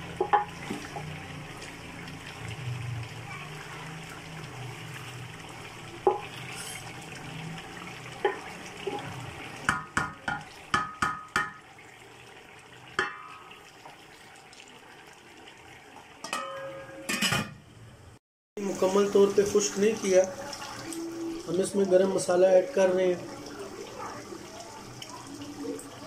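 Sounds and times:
chicken sizzling in a pot: 0:00.0 - 0:17.6, 0:18.6 - 0:26.0
wooden spoon knocking pot: 0:09.7 - 0:11.6
metal lid clank: 0:16.2 - 0:17.6.

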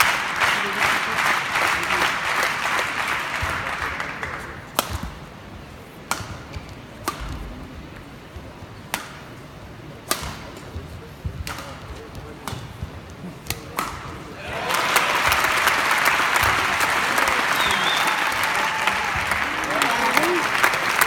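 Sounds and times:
crowd applause: 0:00.0 - 0:04.4, 0:14.4 - 0:21.0
racket striking shuttlecock: 0:04.7 - 0:05.3, 0:06.0 - 0:07.5, 0:08.9 - 0:09.4, 0:10.0 - 0:14.2.

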